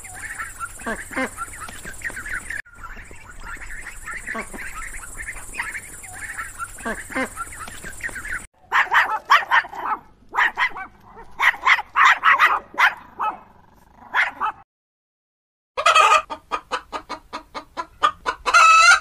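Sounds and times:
hens clucking: 0.0 - 9.4, 15.8 - 19.0
dog barking: 8.6 - 14.6.

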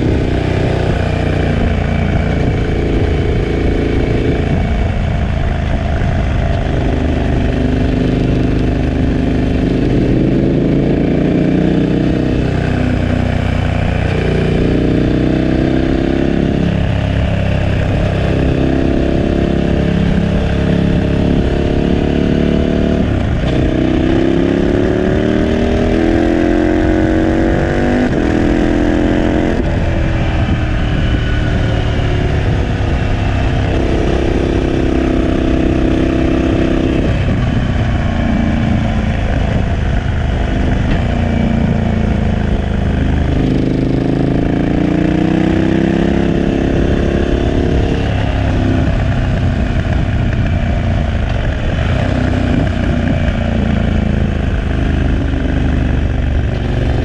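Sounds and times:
motorcycle engine revving through gears: 0.0 - 57.0.

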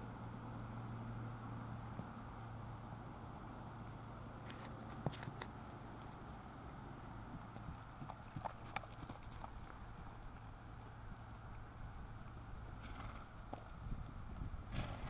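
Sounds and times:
horse hoofbeats on grass: 4.4 - 15.0.

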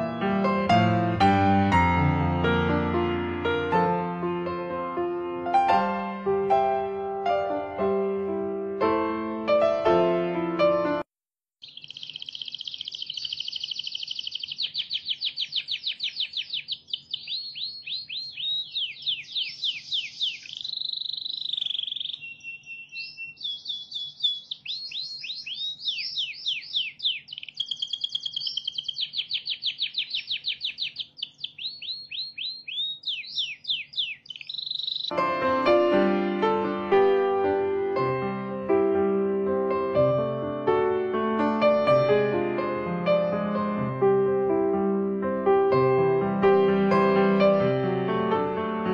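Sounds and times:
canary singing: 11.6 - 35.2.

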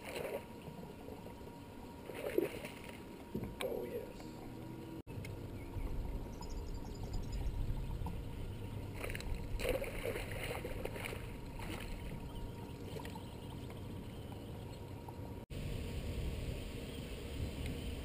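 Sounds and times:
water lapping against boat hull: 5.8 - 15.4.

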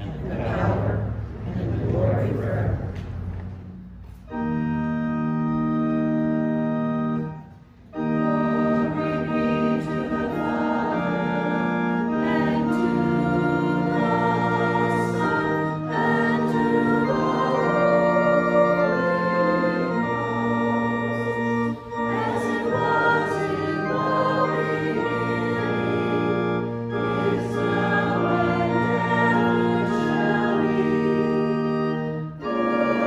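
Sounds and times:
church organ chords: 0.0 - 33.0.

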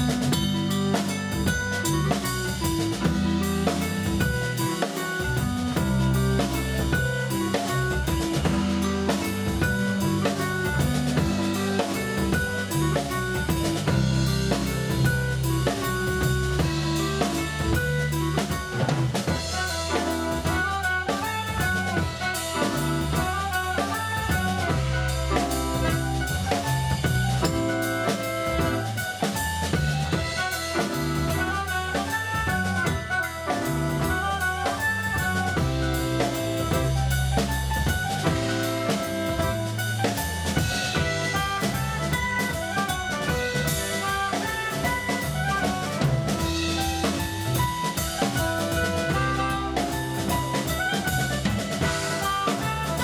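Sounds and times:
live band playing dance tune: 0.0 - 53.0
soprano saxophone and clarinet melody: 1.0 - 53.0.

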